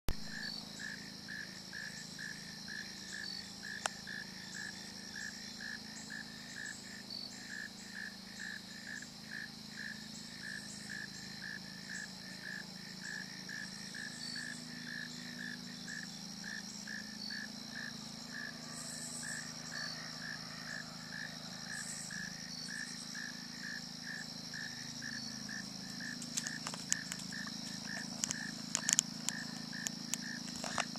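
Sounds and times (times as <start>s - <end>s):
crickets and insects trilling: 0.1s - 30.9s
camera clicks among branches: 26.1s - 30.9s.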